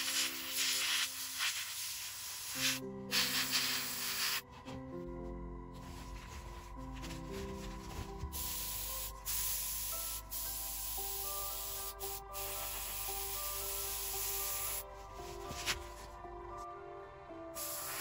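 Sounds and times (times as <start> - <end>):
airbrush hissing: 0.0 - 4.4, 8.3 - 15.7, 17.6 - 18.0
soft background music: 0.0 - 18.0.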